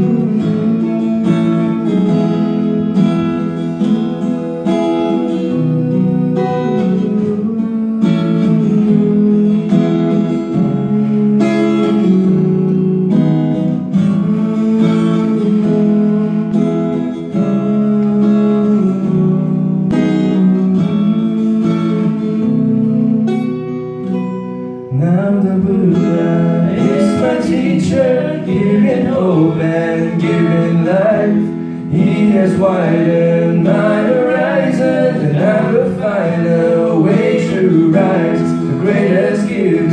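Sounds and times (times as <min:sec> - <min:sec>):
people singing: 0:00.0 - 0:02.4, 0:03.9 - 0:12.4, 0:13.8 - 0:19.7, 0:25.0 - 0:39.9
acoustic guitar strumming chords: 0:00.0 - 0:39.9.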